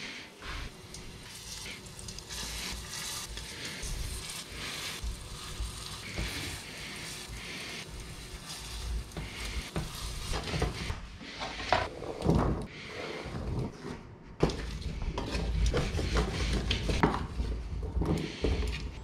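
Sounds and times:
food sizzling in a frying pan: 0:00.5 - 0:10.9.

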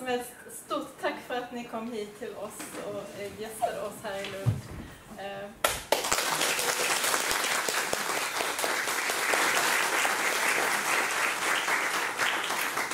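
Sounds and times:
audience applauding: 0:05.9 - 0:12.9.

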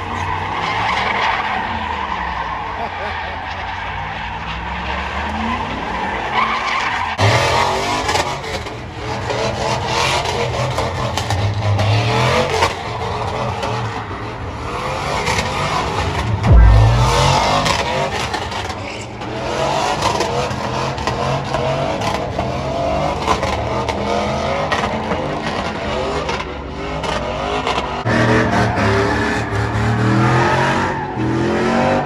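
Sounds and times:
tires squealing: 0:00.0 - 0:32.0
car engines revving: 0:07.2 - 0:32.0
heavy low thump: 0:16.2 - 0:17.9.

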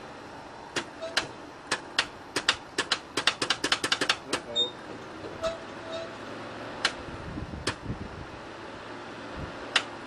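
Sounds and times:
steady background hum: 0:00.0 - 0:10.0
starter solenoid clicks: 0:00.7 - 0:04.6, 0:06.8 - 0:07.0, 0:07.6 - 0:07.8, 0:09.7 - 0:10.0.

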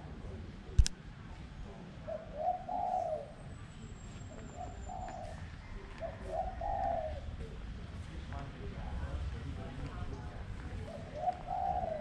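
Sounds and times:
dove cooing: 0:02.0 - 0:03.4, 0:04.5 - 0:07.5, 0:10.8 - 0:12.0.

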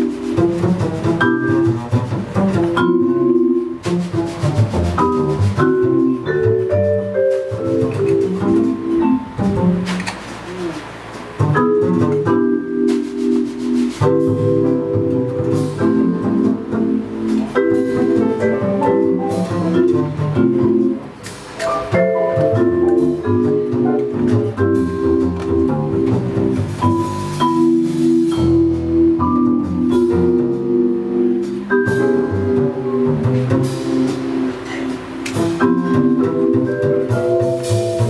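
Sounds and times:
drums: 0:00.0 - 0:38.0
plucked double bass: 0:00.0 - 0:38.0
vibraphone: 0:02.6 - 0:03.8, 0:05.0 - 0:09.8, 0:14.1 - 0:38.0.

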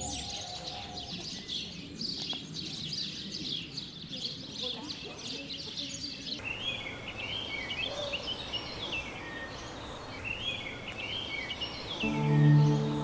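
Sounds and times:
songbirds singing: 0:00.0 - 0:13.0
low background hiss: 0:06.4 - 0:13.0.

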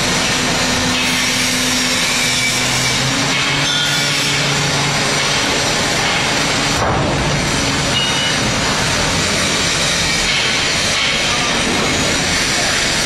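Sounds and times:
garbage truck hydraulics working: 0:00.0 - 0:13.0.

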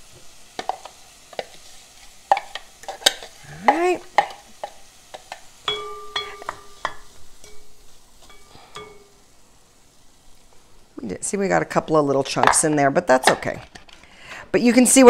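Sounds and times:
pot ringing: 0:05.6 - 0:09.2.

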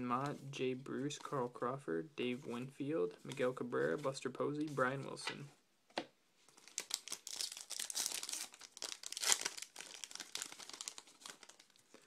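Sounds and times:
wrapper tearing and crinkling: 0:06.5 - 0:11.9.

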